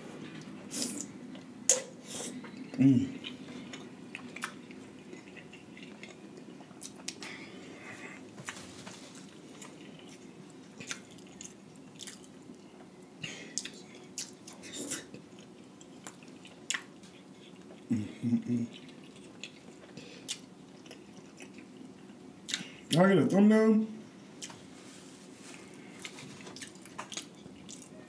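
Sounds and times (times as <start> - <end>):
faint steady hum: 0.0 - 28.0
chewing and wet lip smacks: 3.2 - 7.3, 9.6 - 12.6, 13.6 - 17.8, 18.7 - 21.8, 26.0 - 27.9.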